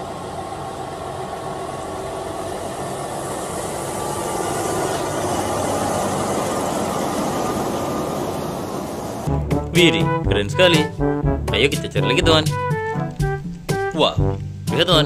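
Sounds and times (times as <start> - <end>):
road noise: 0.0 - 15.0
truck diesel engine passing: 0.0 - 15.0.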